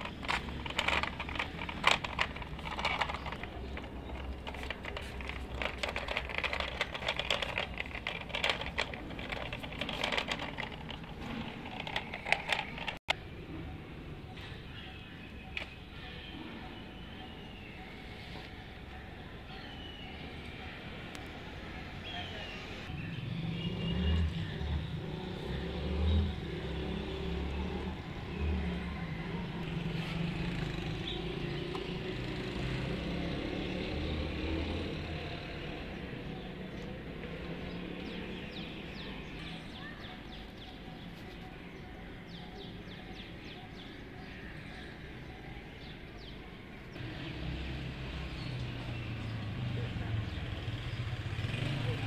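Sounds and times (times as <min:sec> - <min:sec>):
vehicle engine running: 0:00.0 - 0:13.1
birds chirping: 0:00.0 - 0:52.0.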